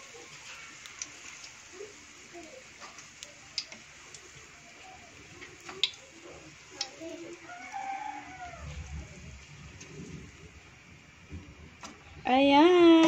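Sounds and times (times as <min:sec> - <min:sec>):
rooster crowing: 0:07.4 - 0:09.4.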